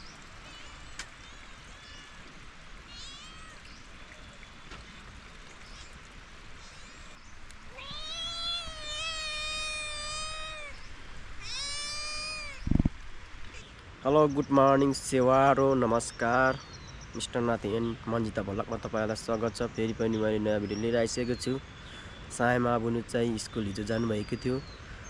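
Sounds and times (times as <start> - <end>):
animal calling: 2.9 - 4.3, 6.6 - 12.7.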